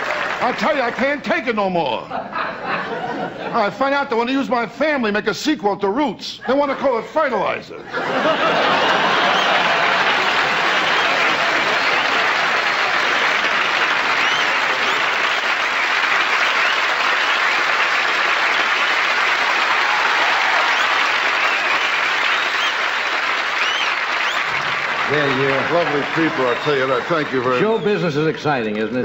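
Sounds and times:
audience applauding: 0:00.0 - 0:01.5, 0:08.1 - 0:29.0.

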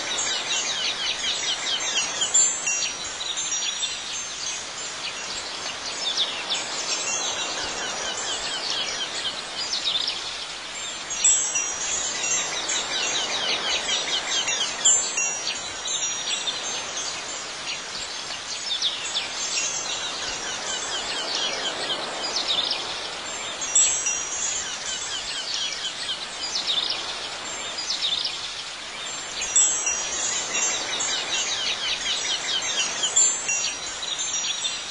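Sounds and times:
steady background hiss: 0:00.0 - 0:34.9
wind chimes tinkling: 0:00.0 - 0:34.9.

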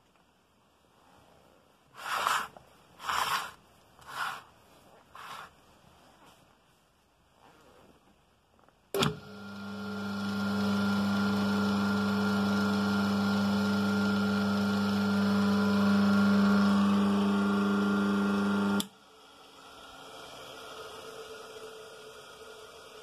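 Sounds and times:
electric motor humming: 0:09.0 - 0:23.0.

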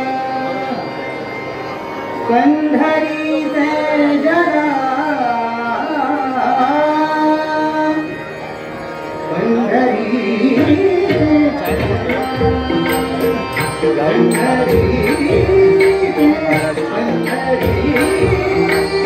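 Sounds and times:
man singing devotional song: 0:00.0 - 0:01.0, 0:02.3 - 0:08.2, 0:09.2 - 0:19.0
harmonium: 0:00.0 - 0:19.0
tabla strokes: 0:10.6 - 0:19.0.

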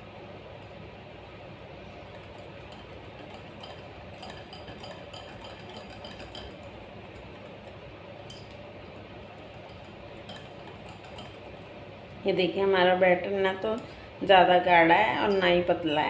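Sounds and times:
whisk clinking against glass bowl: 0:02.1 - 0:07.3, 0:08.2 - 0:08.6, 0:09.4 - 0:11.6.

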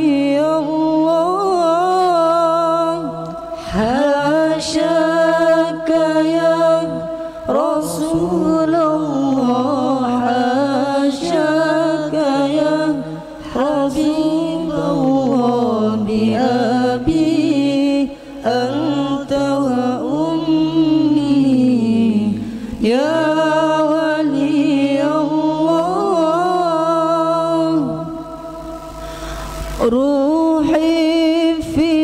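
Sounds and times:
men singing a cappella: 0:00.0 - 0:32.0.

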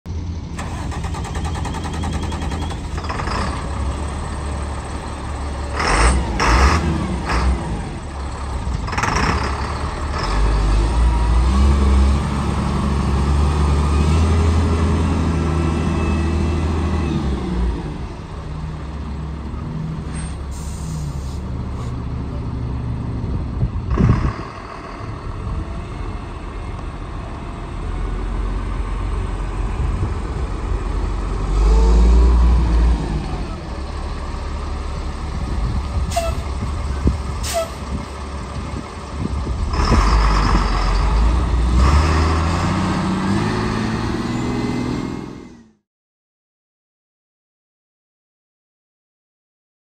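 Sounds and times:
truck diesel engine running: 0:00.1 - 0:31.9, 0:33.0 - 0:43.8
air brake hisses: 0:20.2 - 0:22.0, 0:37.4 - 0:37.8.

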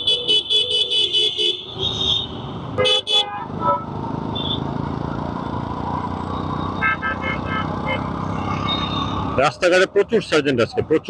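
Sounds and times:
engine and road noise: 0:00.0 - 0:11.0
rapid pulsing car horn: 0:06.8 - 0:08.1.

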